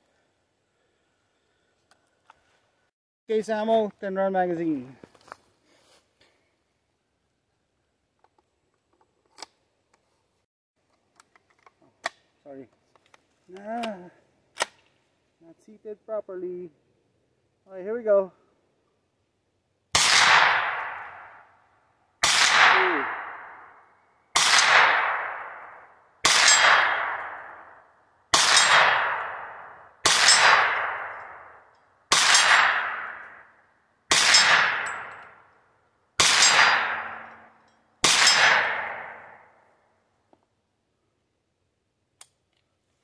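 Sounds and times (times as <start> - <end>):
gunshots with echo: 20.0 - 21.4, 22.2 - 23.8, 24.4 - 27.7, 28.4 - 33.4, 34.1 - 35.1, 36.2 - 37.4, 38.0 - 39.4.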